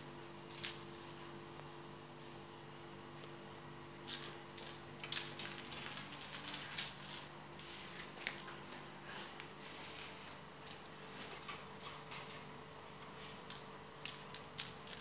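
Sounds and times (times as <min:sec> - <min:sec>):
faint steady hum: 0:00.0 - 0:15.0
kitten scuffling on tile floor: 0:04.0 - 0:11.4.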